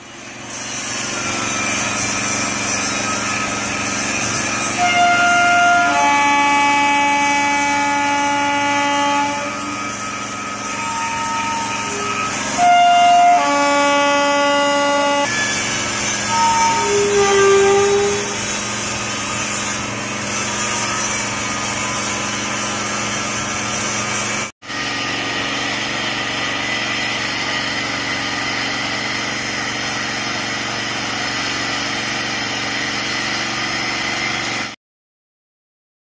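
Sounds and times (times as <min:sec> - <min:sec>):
angle grinder whining on steel: 0:00.0 - 0:34.7
rail grinder running: 0:00.0 - 0:34.8.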